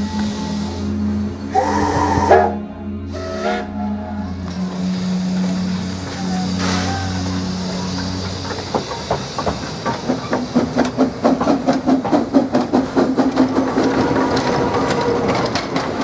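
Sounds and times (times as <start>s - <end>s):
steam locomotive exhaust beats: 0.0s - 16.0s
steam hissing: 4.4s - 16.0s.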